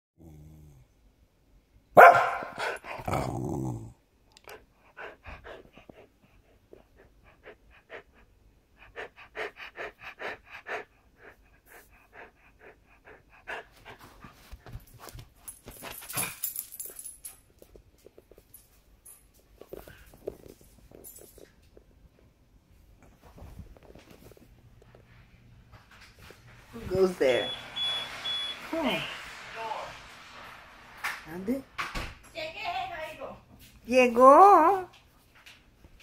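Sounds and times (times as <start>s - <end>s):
dog barking: 2.0s - 2.8s
dog panting: 2.4s - 3.1s, 4.4s - 15.2s.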